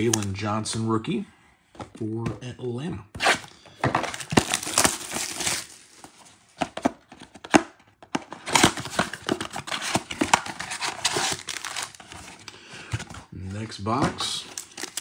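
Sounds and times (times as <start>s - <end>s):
cardboard box crinkling and tearing: 4.0s - 7.5s, 8.4s - 13.2s, 14.2s - 15.0s.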